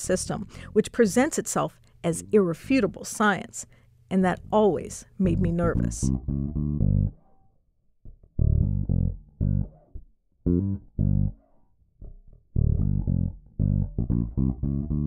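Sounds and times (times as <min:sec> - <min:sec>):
plucked bass guitar line: 0:04.4 - 0:07.2, 0:08.1 - 0:15.0.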